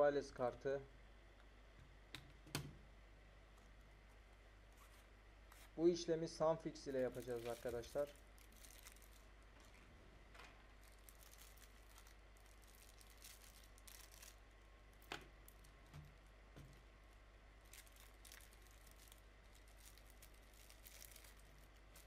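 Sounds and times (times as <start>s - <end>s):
plastic bag crinkling: 6.9s - 9.8s, 10.8s - 16.9s, 17.6s - 22.0s.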